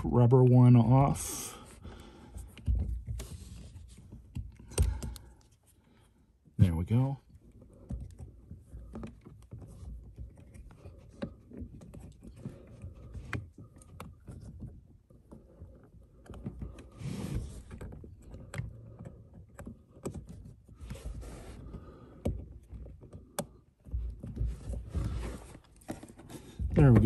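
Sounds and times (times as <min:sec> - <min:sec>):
rubber rubbing and scuffing: 0:02.7 - 0:04.5, 0:16.6 - 0:18.0, 0:20.2 - 0:21.9, 0:23.9 - 0:27.0
small clicks and taps: 0:22.1 - 0:24.5.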